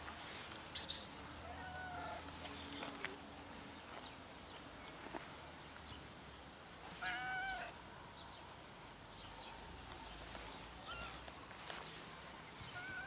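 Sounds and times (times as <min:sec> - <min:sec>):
cat meowing: 0:07.0 - 0:07.7.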